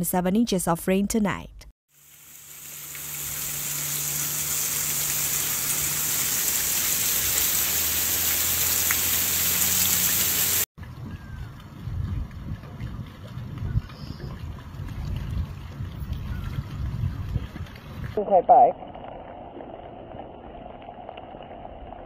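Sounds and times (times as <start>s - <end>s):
heavy rain pouring on street: 2.5s - 10.7s
wind rumble on microphone: 10.8s - 18.2s.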